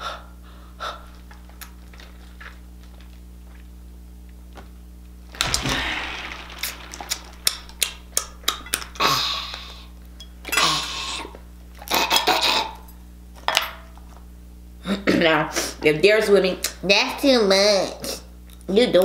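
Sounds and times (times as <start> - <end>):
loud rush of noise: 5.4 - 7.9.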